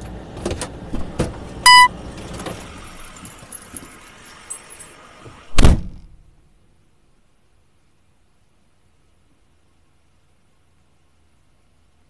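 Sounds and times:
short electronic beep: 0:01.7 - 0:01.9.

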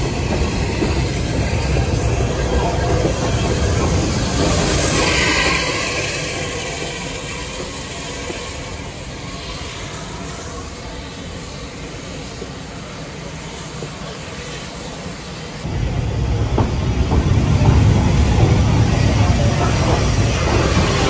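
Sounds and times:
hiss of steam: 0:00.0 - 0:15.8, 0:17.4 - 0:21.0
train coaches rumbling on rails: 0:00.0 - 0:21.0.

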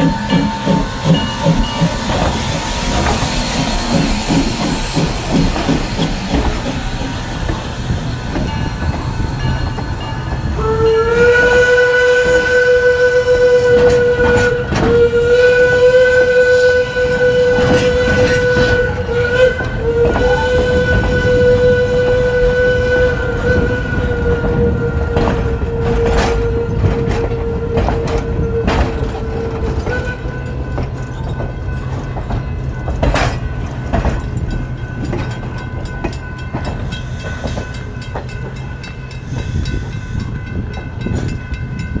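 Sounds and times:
high-pitched squeal: 0:00.0 - 0:10.3
train rumble: 0:00.0 - 0:42.0
train wheels clacking over rail joints: 0:00.0 - 0:42.0.

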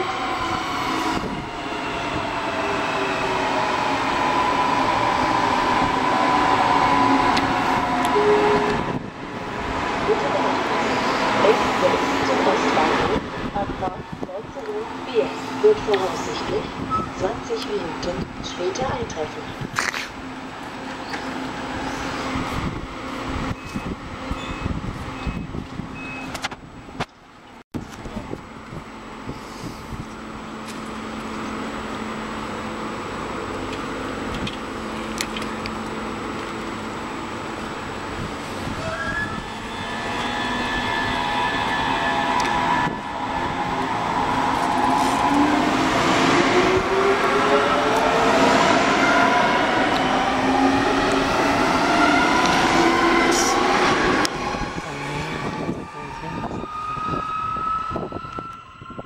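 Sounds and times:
electric train humming: 0:00.0 - 0:25.9, 0:28.3 - 0:59.0
door-closing warning beeps: 0:23.6 - 0:26.4.

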